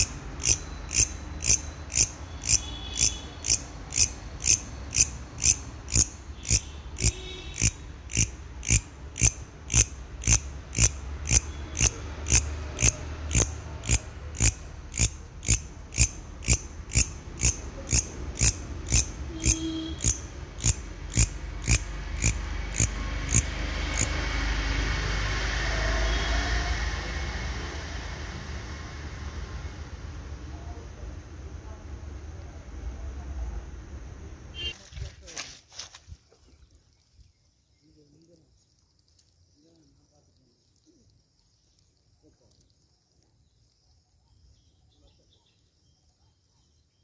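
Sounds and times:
katydid chirping: 0.0s - 24.5s.

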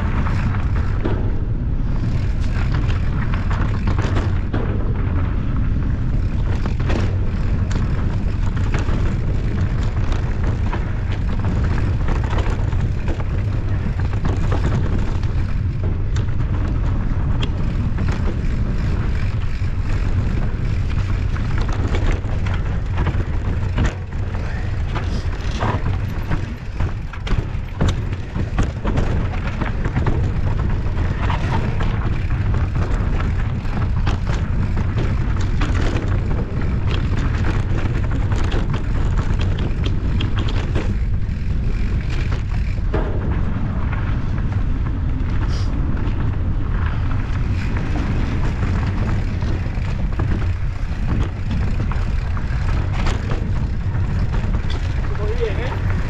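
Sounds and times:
bike clicks and rattles: 0.0s - 56.0s
wind rumbling on microphone: 0.0s - 56.0s.

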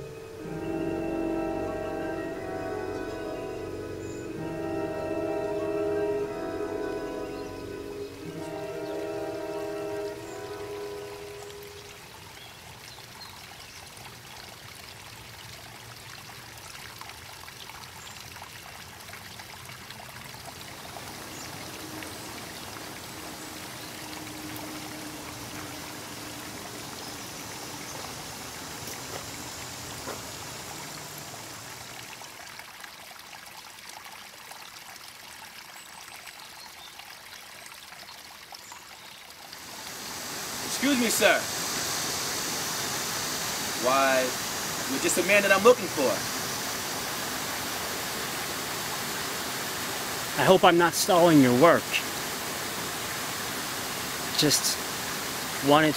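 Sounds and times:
stream water flowing: 0.0s - 55.9s.

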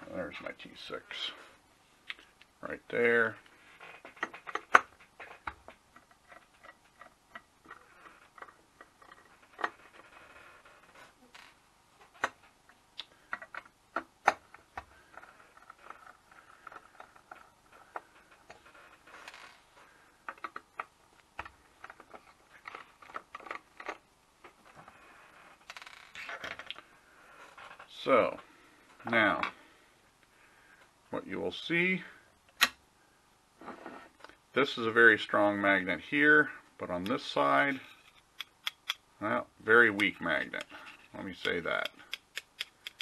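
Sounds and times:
screwdriver clicks and ticks: 38.4s - 39.0s, 42.1s - 43.0s.

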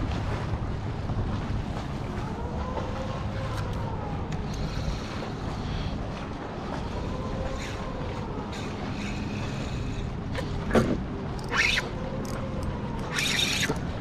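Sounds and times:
faint motor drone: 0.0s - 14.0s
wind and water noise: 0.0s - 14.0s.

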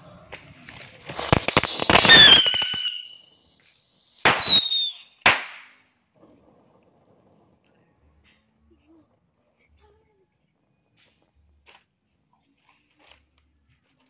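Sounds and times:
firecrackers cracking: 0.3s - 3.4s, 4.2s - 5.9s
firework whistles falling in pitch: 1.2s - 5.7s.

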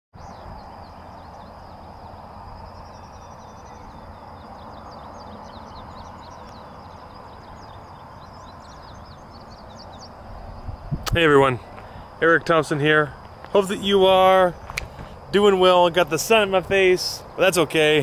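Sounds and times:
wind on microphone: 0.2s - 12.2s
small birds chirping: 0.2s - 18.0s.

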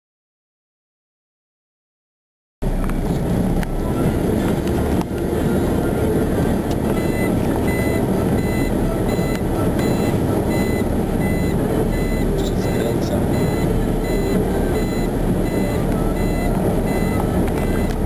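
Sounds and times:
diesel engine rumbling: 2.6s - 18.0s
reversing alarm beeping: 6.9s - 18.0s.

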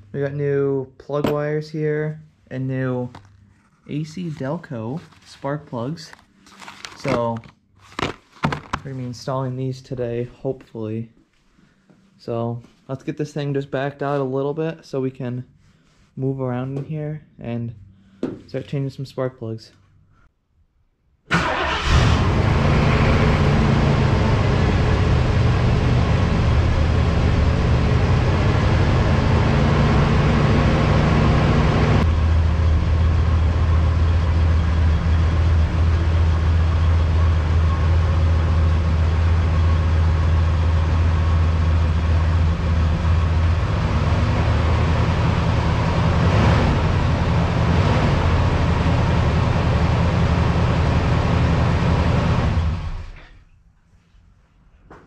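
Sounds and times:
car engine running at low speed: 22.0s - 53.2s.

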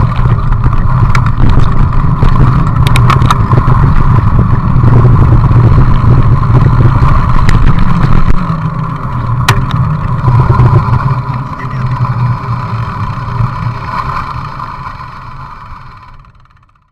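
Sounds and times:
wind buffeting microphone: 0.0s - 13.8s
sharp clicks: 1.0s - 3.5s.

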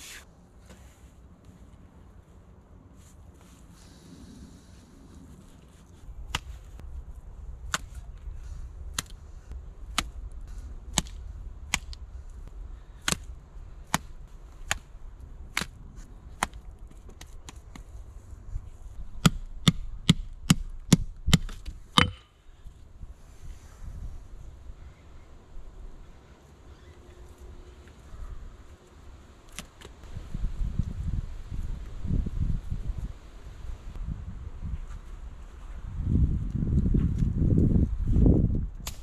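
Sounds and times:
hatchet knocking wooden stakes: 10.9s - 12.0s, 19.2s - 22.3s.

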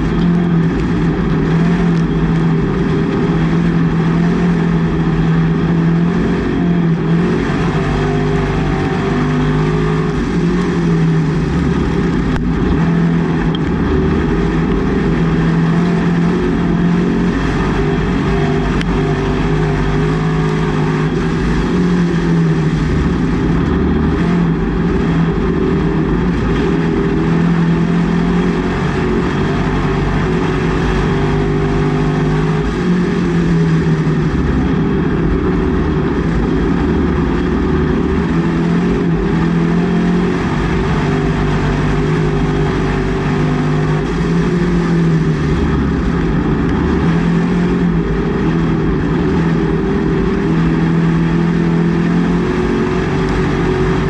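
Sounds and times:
race car engine at speed: 0.0s - 54.0s.

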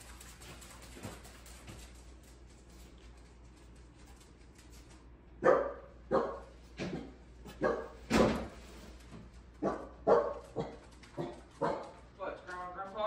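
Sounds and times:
dog barking: 5.4s - 8.0s, 9.6s - 12.0s.

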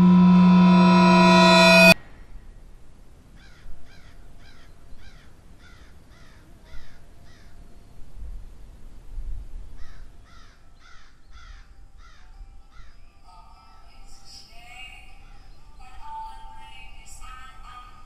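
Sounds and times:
low rumble: 0.0s - 2.0s.

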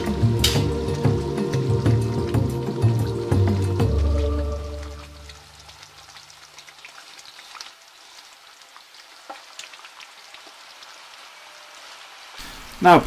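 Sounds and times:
utensil stirring sauce: 0.0s - 4.8s
curry sizzling in a pan: 0.0s - 13.0s.

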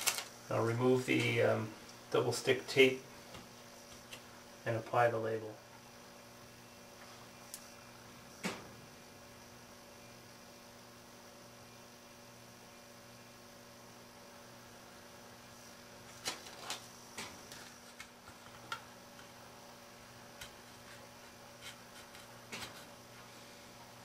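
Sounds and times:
electrical mains hum: 0.0s - 24.0s.

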